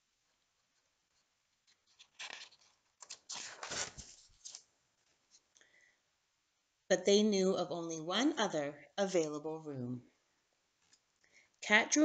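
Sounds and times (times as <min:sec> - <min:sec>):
book pages turning: 0:01.6 - 0:05.4.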